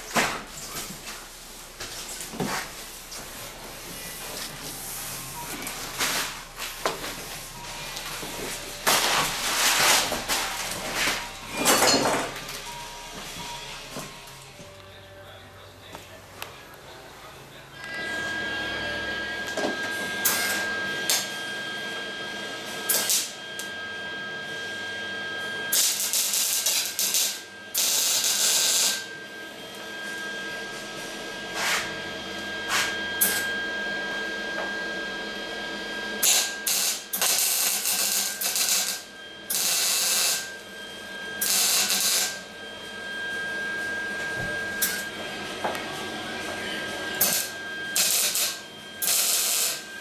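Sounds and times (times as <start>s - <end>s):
faint steady high tone: 6.8s - 9.2s, 10.4s - 22.0s
welding bursts: 25.7s - 29.0s, 36.2s - 40.5s, 41.4s - 42.4s, 47.2s - 49.8s.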